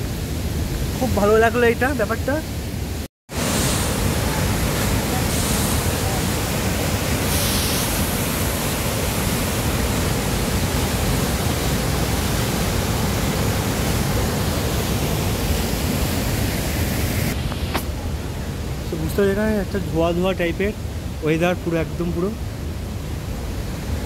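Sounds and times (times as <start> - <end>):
waterfall rushing: 3.3 - 22.2.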